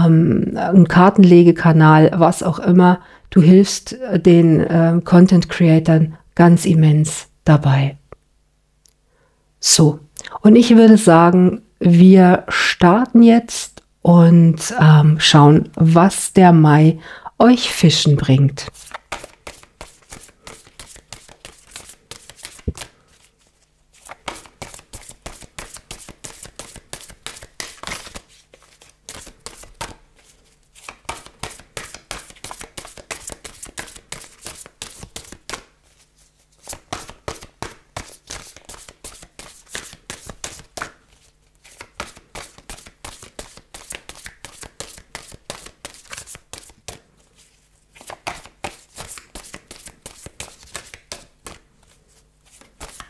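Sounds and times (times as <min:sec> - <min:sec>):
cards being shuffled: 0:18.6 - 0:53.0.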